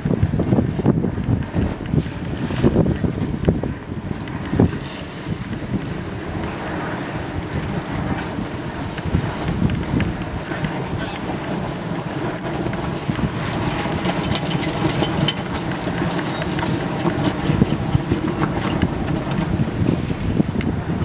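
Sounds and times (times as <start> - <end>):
wind buffeting microphone: 0.0 - 21.0
sharp clicks and rattles: 7.5 - 20.7.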